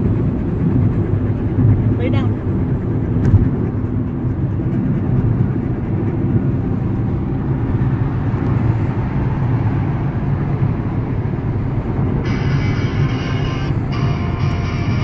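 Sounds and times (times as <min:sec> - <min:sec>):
road and engine rumble in car: 0:00.0 - 0:15.0
music: 0:12.2 - 0:15.0.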